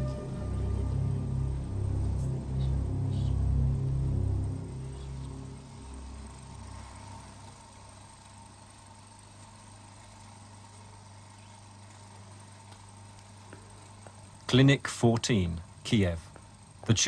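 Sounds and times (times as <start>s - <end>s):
low music: 0.0s - 8.4s
faint steady low hum: 0.0s - 17.0s.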